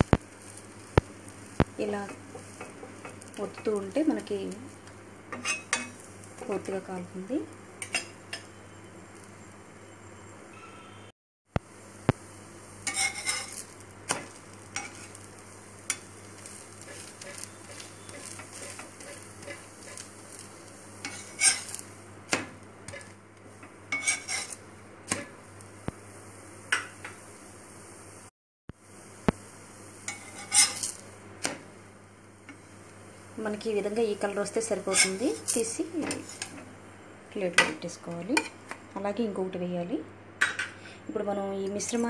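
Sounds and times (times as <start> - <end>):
bread sizzling in a pan: 0.0 - 10.0, 11.6 - 38.7
metal spatula scraping a pan: 5.3 - 6.7, 12.8 - 15.2, 15.9 - 20.4, 21.0 - 21.8, 22.9 - 23.2, 23.9 - 25.2, 30.1 - 31.0, 34.6 - 36.6.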